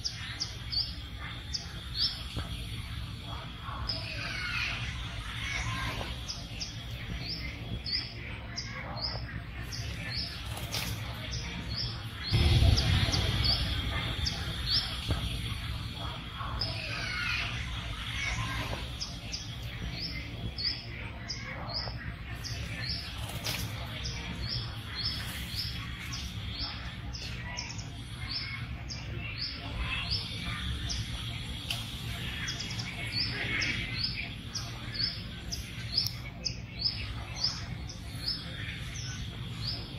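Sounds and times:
low background rumble: 11.3s - 23.1s.

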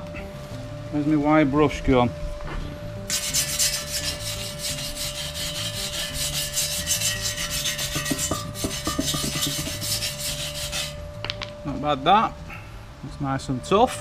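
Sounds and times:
wire brush rasping on steel: 3.1s - 11.1s.

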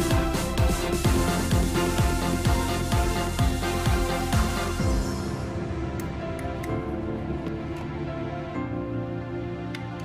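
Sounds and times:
electronic music with kick drum: 0.0s - 7.8s.

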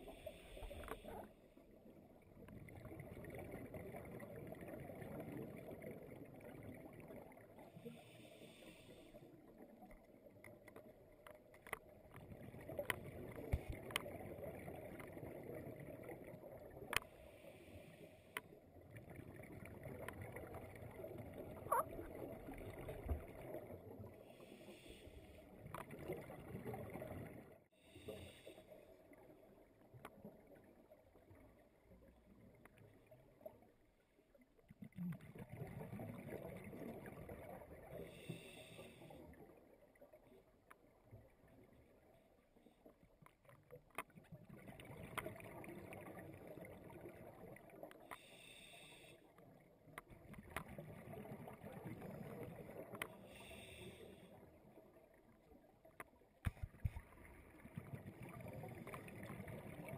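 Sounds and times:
diver breathing on regulator: 38.1s - 39.2s, 48.1s - 49.3s, 53.2s - 54.3s.

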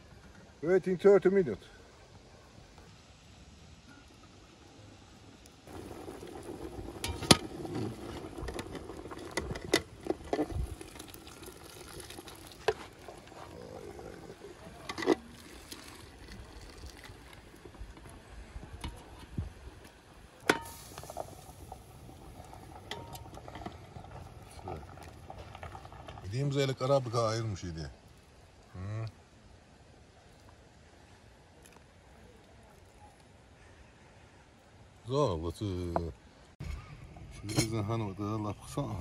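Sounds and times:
broth bubbling in a pot: 1.9s - 35.1s
liquid sloshing: 5.7s - 17.7s.

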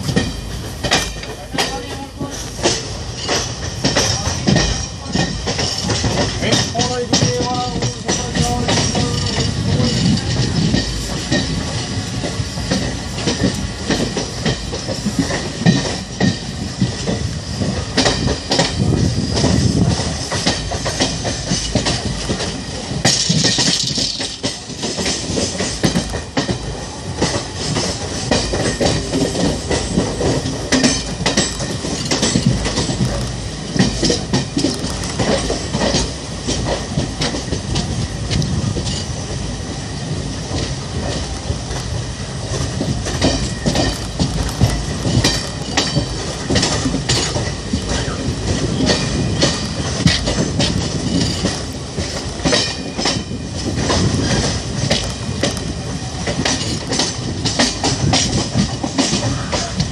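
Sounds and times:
train wheels clattering over joints: 0.0s - 59.9s.

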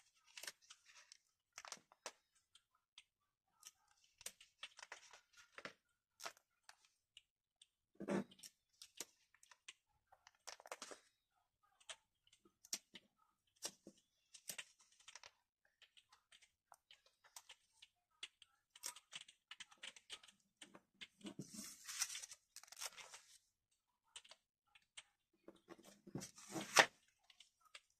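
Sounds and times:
small clicks and ticks: 0.1s - 26.3s, 26.9s - 27.9s
plastic sleeves rustling: 21.0s - 23.4s.

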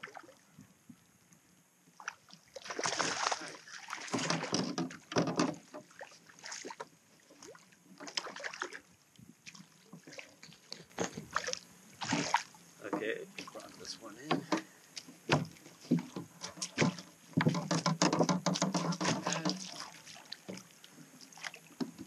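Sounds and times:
water splashing against a kayak: 0.0s - 1.1s, 1.8s - 22.0s
sharp knocks: 15.3s - 19.7s.

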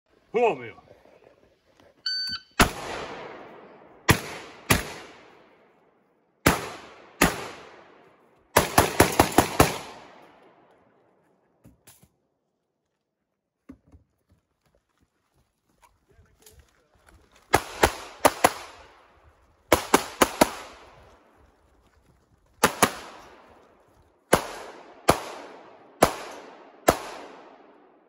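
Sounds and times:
close gunshots: 2.6s - 5.4s, 6.4s - 10.2s, 17.5s - 18.9s, 19.7s - 20.9s, 22.6s - 23.2s, 24.3s - 27.7s.

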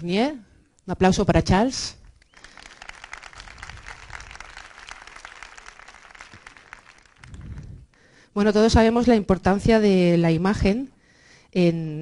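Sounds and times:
audience applause: 2.3s - 7.9s.

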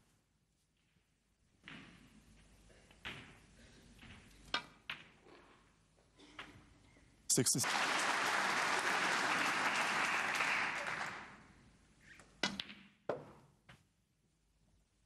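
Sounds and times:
audience applauding: 7.4s - 11.5s.

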